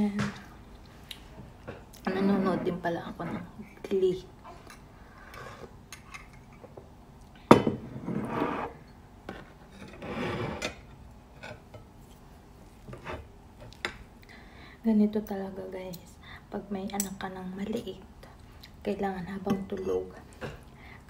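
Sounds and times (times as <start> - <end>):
cutlery scraping ceramic plate: 8.0 - 11.6.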